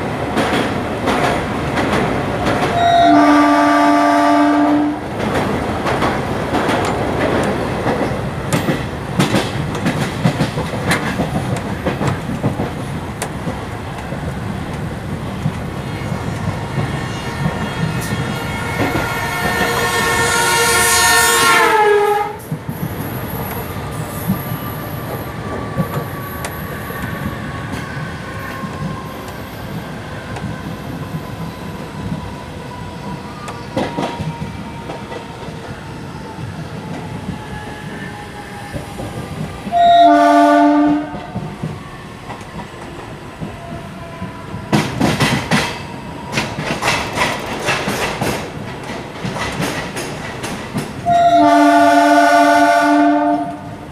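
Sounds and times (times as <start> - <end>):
train horn: 2.7 - 5.1, 17.0 - 22.5, 39.7 - 41.4, 51.0 - 53.8.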